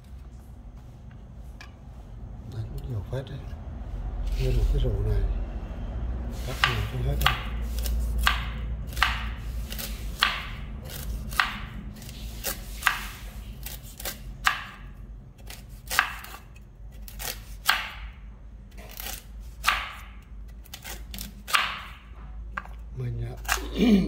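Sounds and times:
knife chopping fruit: 0:06.4 - 0:24.0.

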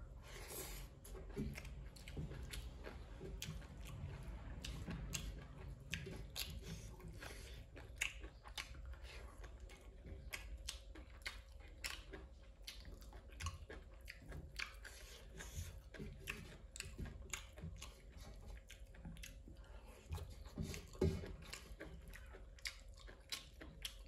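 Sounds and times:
person chewing food: 0:00.0 - 0:24.0.

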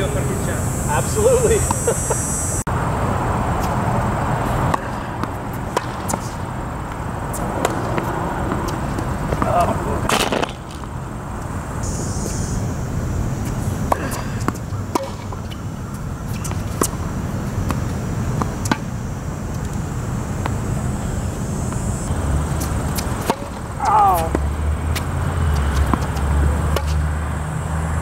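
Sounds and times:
tennis ball bouncing: 0:04.5 - 0:11.0, 0:13.4 - 0:20.9, 0:21.6 - 0:27.1
tennis ball hitting racket: 0:04.5 - 0:11.0, 0:13.4 - 0:19.0, 0:22.4 - 0:27.1.

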